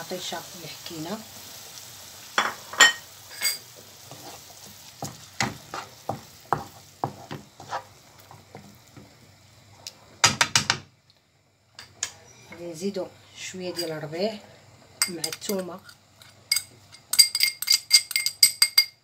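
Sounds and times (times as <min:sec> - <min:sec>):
vegetables sizzling in a pan: 0:00.0 - 0:18.5
spatula knocking and scraping pan: 0:02.4 - 0:09.1.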